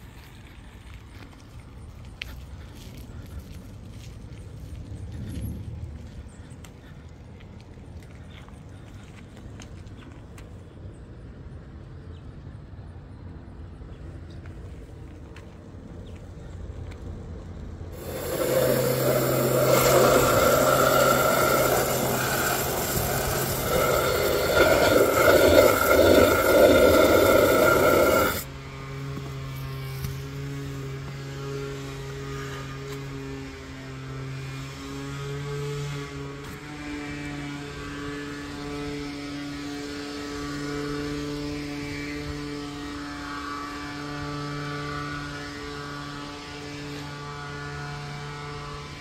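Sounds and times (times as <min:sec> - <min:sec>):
steady low hum: 0:17.7 - 0:28.6
hose spraying water into bucket: 0:18.0 - 0:28.5.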